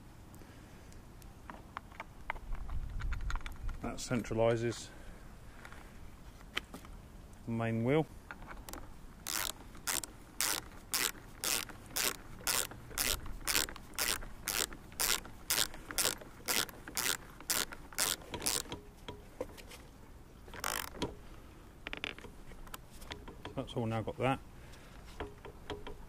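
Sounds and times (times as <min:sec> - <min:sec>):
ratchet wrench clicking: 0:08.7 - 0:18.8, 0:20.6 - 0:21.1.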